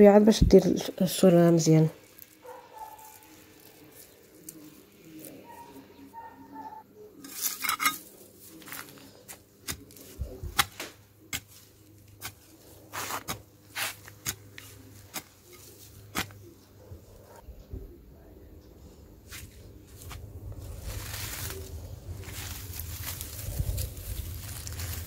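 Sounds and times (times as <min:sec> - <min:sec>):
hoe clinking and scraping stony soil: 0:01.7 - 0:06.2, 0:07.2 - 0:10.4, 0:11.2 - 0:16.5, 0:19.3 - 0:25.0.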